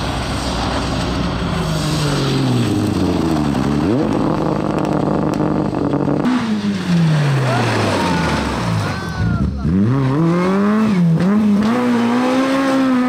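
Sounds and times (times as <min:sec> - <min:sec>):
rally car engine revving: 0:00.0 - 0:13.0
tyre and road noise: 0:00.0 - 0:13.0.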